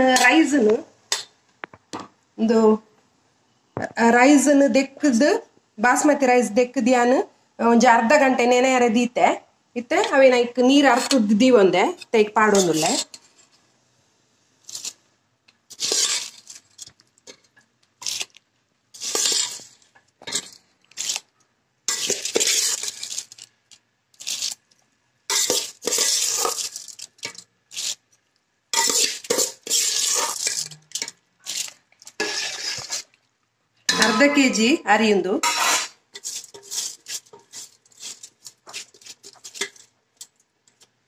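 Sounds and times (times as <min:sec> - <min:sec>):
dishes and utensils clinking: 0:20.2 - 0:20.6, 0:28.8 - 0:31.2, 0:33.9 - 0:34.4.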